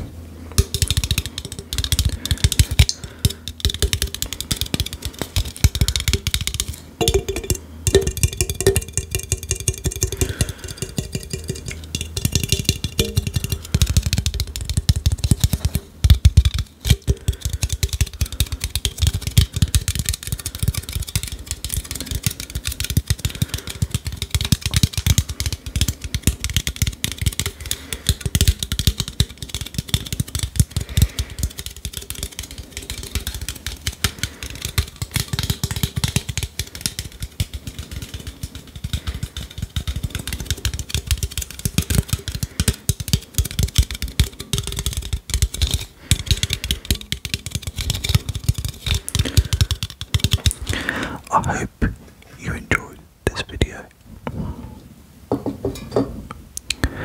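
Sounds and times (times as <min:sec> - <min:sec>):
fingernails tapping on metal can: 0:00.6 - 0:50.8.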